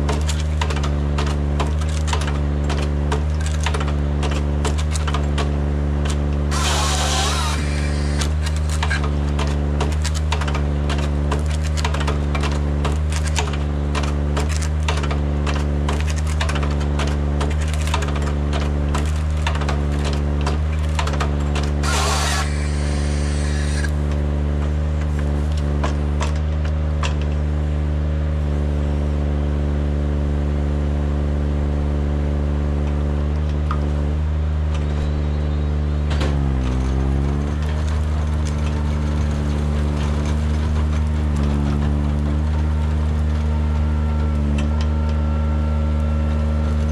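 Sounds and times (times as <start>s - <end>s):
engine running steadily: 0.0s - 46.9s
saw cutting through wood: 6.5s - 9.1s, 21.8s - 24.0s.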